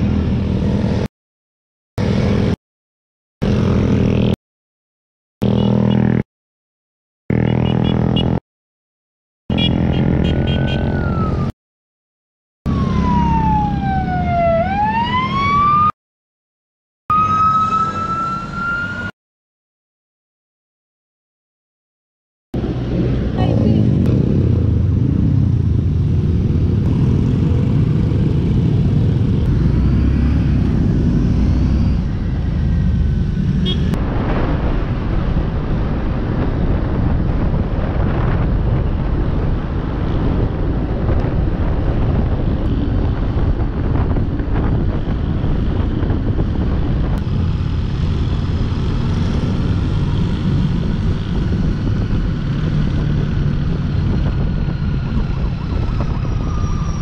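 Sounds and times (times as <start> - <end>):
wind on microphone: 34.0 - 57.0.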